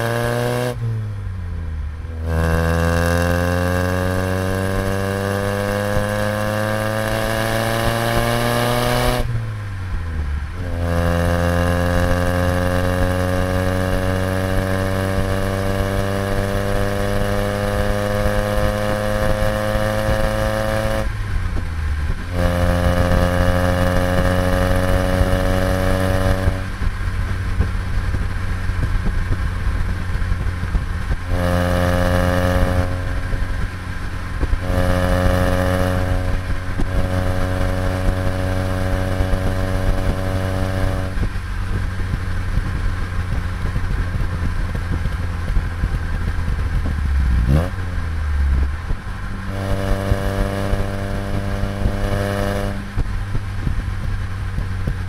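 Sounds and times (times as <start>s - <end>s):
car engine exhaust while driving: 0.0s - 55.0s.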